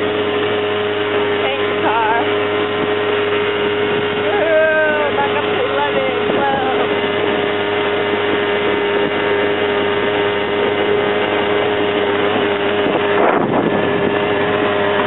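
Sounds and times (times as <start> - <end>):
atv engine droning: 0.0 - 15.0
wind buffeting microphone: 0.0 - 15.0.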